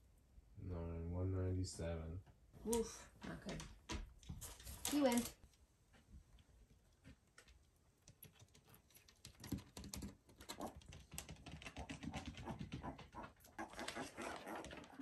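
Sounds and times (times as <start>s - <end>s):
hooves tapping on wooden floor: 2.7s - 5.3s, 6.9s - 15.0s.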